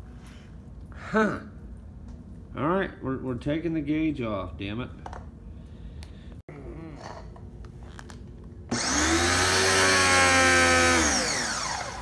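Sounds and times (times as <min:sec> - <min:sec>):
pressure washer motor whine: 0:08.7 - 0:12.0.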